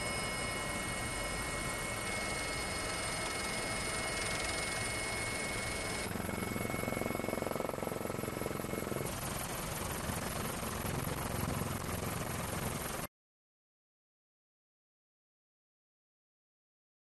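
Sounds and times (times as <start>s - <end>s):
helicopter rotor and turbine: 0.0s - 13.1s.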